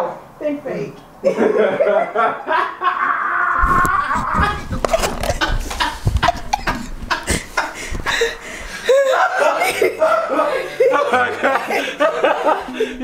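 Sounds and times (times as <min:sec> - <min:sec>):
person laughing: 0:01.3 - 0:13.0
person crying out: 0:02.8 - 0:04.9.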